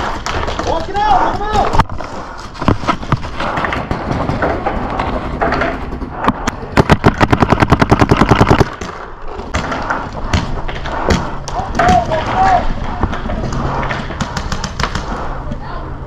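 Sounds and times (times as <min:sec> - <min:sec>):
paintball marker firing: 0:06.2 - 0:12.1, 0:13.0 - 0:15.3.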